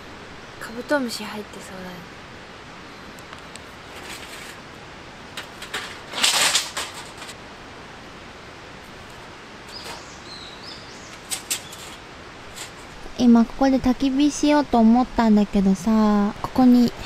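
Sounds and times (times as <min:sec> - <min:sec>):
steady background hiss: 0:00.0 - 0:17.0
handling clicks and rustling: 0:05.3 - 0:07.4, 0:11.1 - 0:13.0
faint bird chirps: 0:09.7 - 0:12.0.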